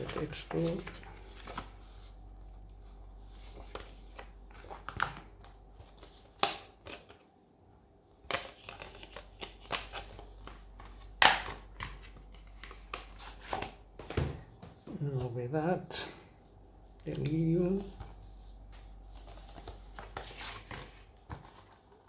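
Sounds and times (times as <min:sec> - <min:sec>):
paper rustling: 0:00.0 - 0:02.2, 0:17.6 - 0:22.0.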